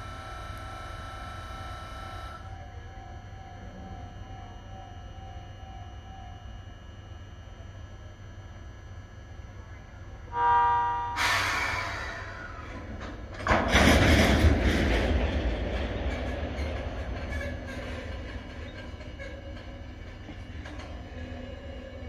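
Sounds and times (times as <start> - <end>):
locomotive horn: 10.3 - 12.1
low rumble with clanks: 11.3 - 22.0.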